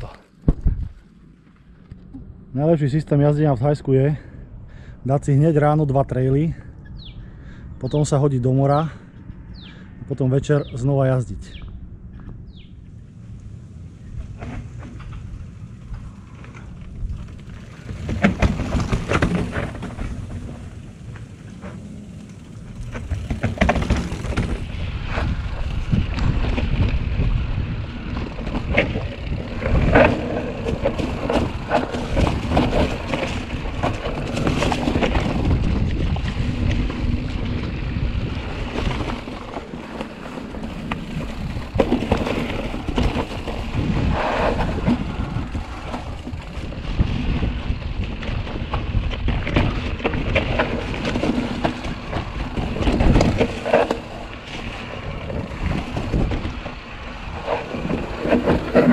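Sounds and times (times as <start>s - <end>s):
wind buffeting microphone: 0.0s - 1.1s, 1.8s - 58.9s
bike clattering over bumps: 14.0s - 58.9s.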